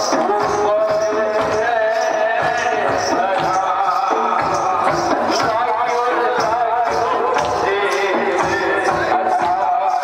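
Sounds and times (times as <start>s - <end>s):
person singing: 0.0s - 10.0s.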